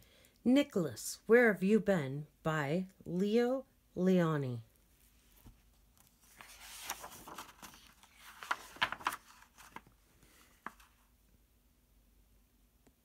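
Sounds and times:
book pages turning: 0:05.0 - 0:11.1
crisp page clicks: 0:05.4 - 0:09.9.

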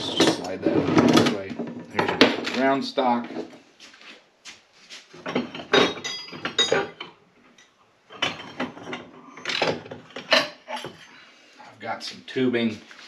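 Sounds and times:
metal bars clinking together: 0:05.4 - 0:07.1.

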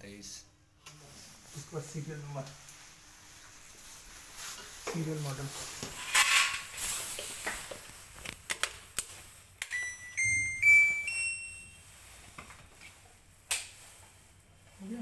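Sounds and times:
rising electronic beeps: 0:10.0 - 0:11.8.

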